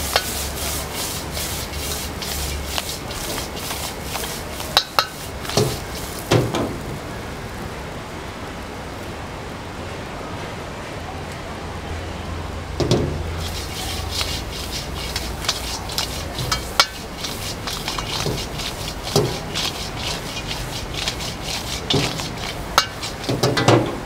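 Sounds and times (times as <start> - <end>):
ladle scraping a wok: 0.0 - 6.9, 12.8 - 24.0
gas burner humming: 0.0 - 8.1, 12.4 - 24.0.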